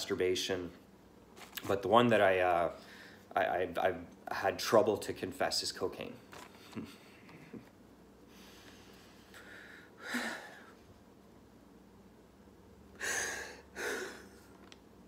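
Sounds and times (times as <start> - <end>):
man sobbing: 10.0 - 10.8, 13.0 - 14.5.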